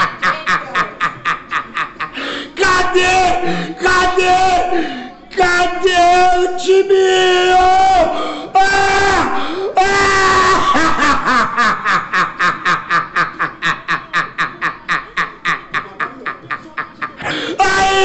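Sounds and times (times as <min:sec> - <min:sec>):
person laughing mockingly: 0:00.0 - 0:02.2, 0:10.4 - 0:18.0.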